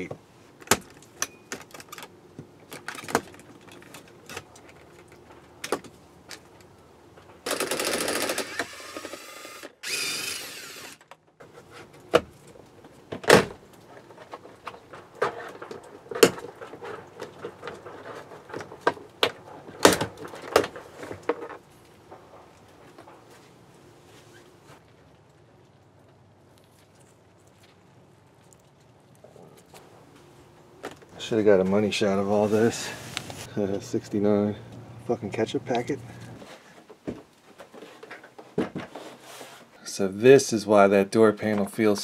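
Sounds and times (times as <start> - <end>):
cordless drill running: 7.5 - 11.0.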